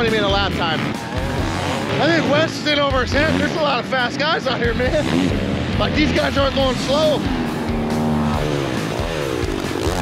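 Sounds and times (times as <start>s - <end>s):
dirt bike engines revving: 0.0s - 10.0s.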